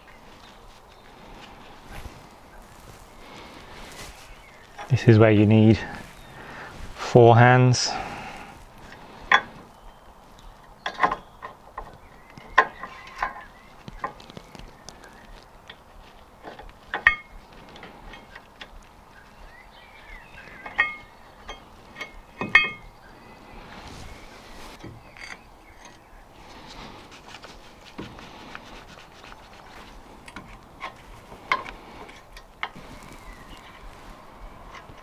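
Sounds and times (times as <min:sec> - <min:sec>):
metal brake parts and tools clinking: 0:20.6 - 0:22.9.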